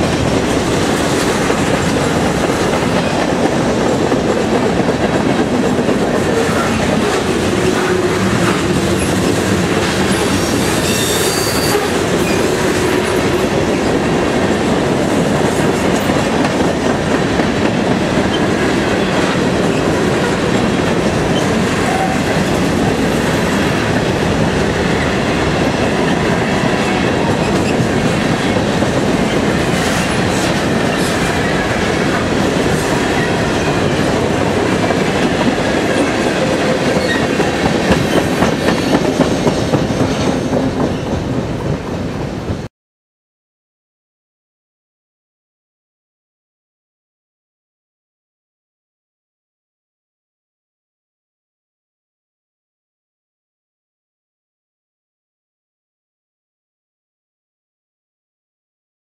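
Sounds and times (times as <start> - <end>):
train wheels on rails: 0.0 - 42.7.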